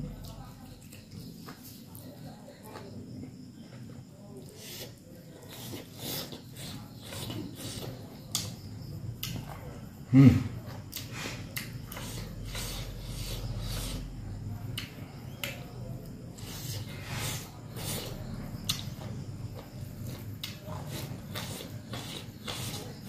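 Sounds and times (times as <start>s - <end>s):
man chewing with mouth clicks: 3.6s - 8.6s, 10.6s - 23.0s
fingers working food on plate: 16.3s - 23.0s.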